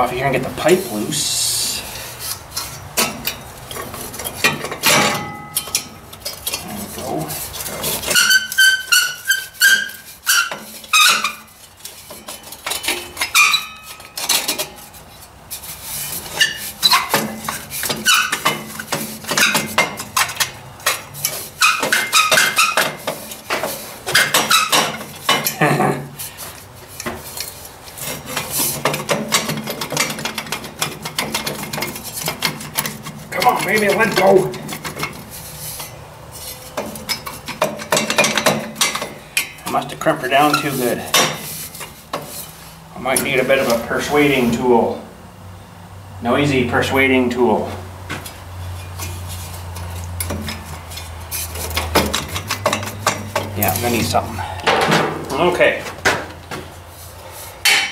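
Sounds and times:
tools and metal parts clinking: 2.2s - 42.5s, 48.7s - 55.6s
metal part ringing: 4.3s - 6.6s.

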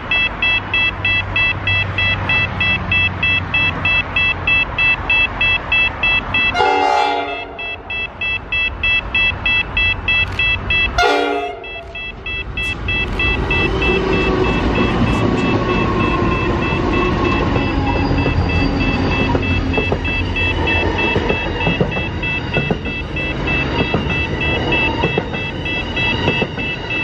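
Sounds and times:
high electronic beeping: 0.0s - 6.8s, 7.5s - 27.0s
locomotive engine rumble: 0.0s - 27.0s
locomotive horn blasts: 6.4s - 7.9s, 10.9s - 12.0s.

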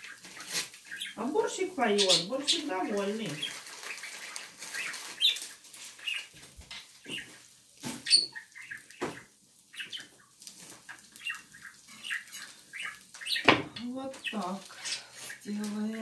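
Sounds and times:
birds chirping: 0.0s - 16.0s.

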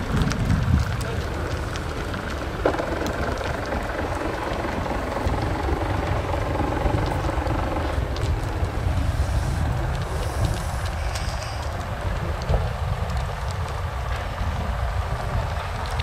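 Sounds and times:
boat engine rumbling: 0.0s - 16.0s.

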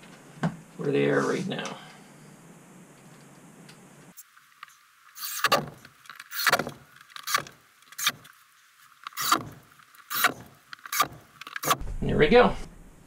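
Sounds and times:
cordless drill driving screws: 5.2s - 8.2s.

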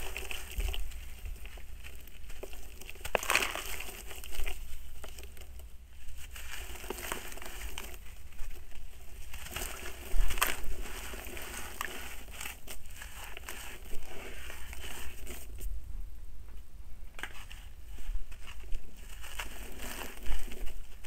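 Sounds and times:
soil crumbling by hand: 0.0s - 15.7s, 17.2s - 21.0s
grit falling into water: 2.0s - 5.4s.

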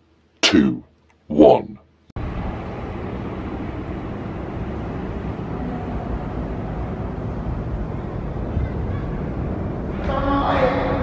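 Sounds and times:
sports hall background noise: 2.2s - 11.0s.

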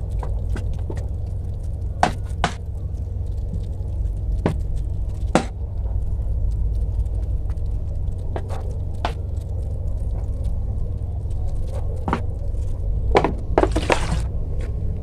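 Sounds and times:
steady low rumble: 0.0s - 15.0s
water falling onto soil and leaves: 0.0s - 15.0s.

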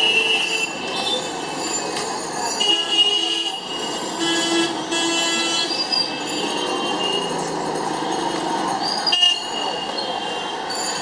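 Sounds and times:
traffic hum: 0.0s - 11.0s
vehicle horns honking: 2.6s - 7.3s.

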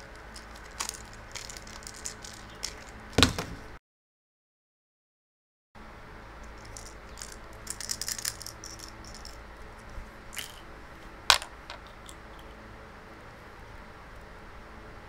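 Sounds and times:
plastic puzzle parts rattling: 0.0s - 3.4s, 6.6s - 10.7s, 11.3s - 12.6s.

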